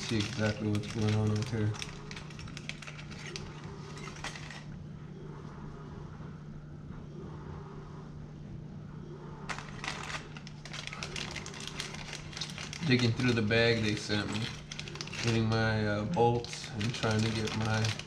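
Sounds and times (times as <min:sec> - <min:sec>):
plastic bag crinkling: 0:00.0 - 0:04.7, 0:09.5 - 0:18.0
small hardware shifting: 0:00.0 - 0:04.7, 0:09.5 - 0:18.0
steady low hum: 0:00.0 - 0:18.0.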